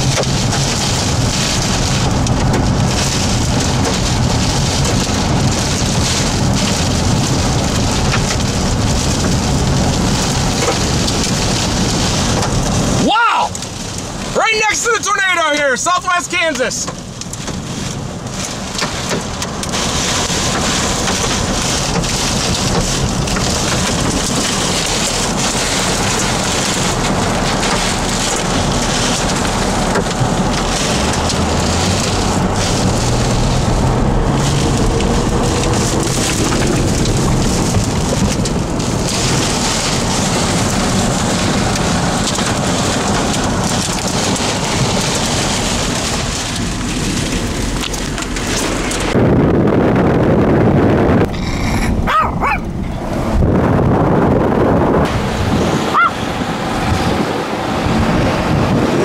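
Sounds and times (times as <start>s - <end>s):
heavy rain falling: 0.0s - 59.0s
low rumble: 16.9s - 59.0s.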